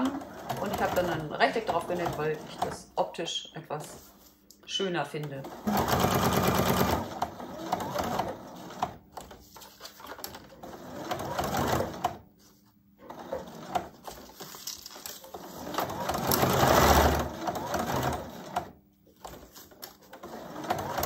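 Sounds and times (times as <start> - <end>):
electric sewing machine stitching: 0.0 - 2.9, 5.4 - 9.0, 10.0 - 12.2, 13.0 - 14.2, 15.2 - 21.0.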